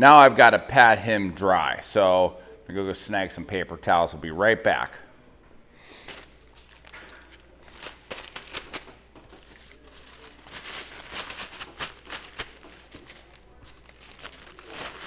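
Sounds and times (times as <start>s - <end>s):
paper towels rustling: 6.0s - 15.0s.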